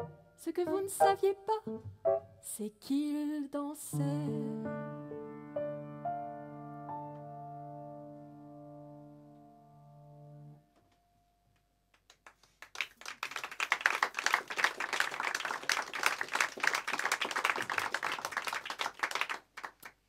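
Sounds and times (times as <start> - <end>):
audience applauding: 12.0 - 20.0.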